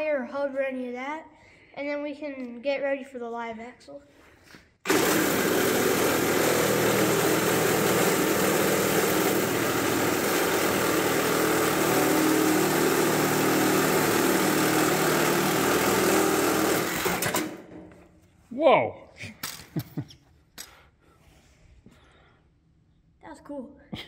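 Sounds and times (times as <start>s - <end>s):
reciprocating saw cutting metal: 4.9s - 17.6s.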